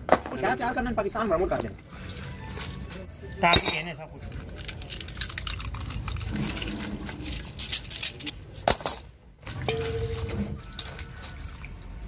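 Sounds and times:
water splashing and sloshing: 1.5s - 3.2s, 4.3s - 12.0s
steel bearing clinking against pan: 3.5s - 3.9s.

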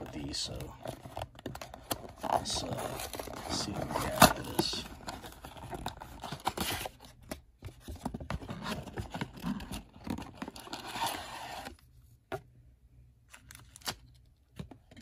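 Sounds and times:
cardboard box tearing: 0.8s - 7.1s, 8.4s - 11.8s.

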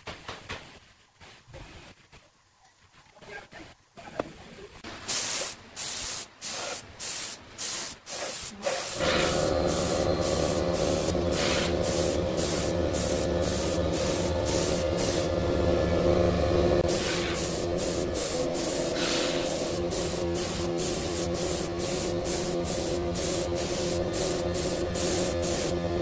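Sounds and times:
short spray hisses: 5.1s - 15.3s, 16.8s - 25.7s
wood lathe humming: 9.0s - 26.0s.

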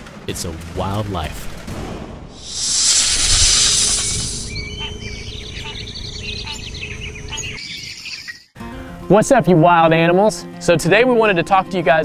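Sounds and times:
loud hissing whoosh: 2.3s - 4.7s
birds chirping: 2.4s - 8.6s.

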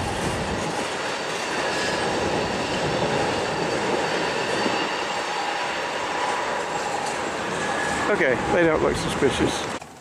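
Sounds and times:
train rumble: 0.0s - 9.8s
high squealing tones: 1.0s - 9.0s.

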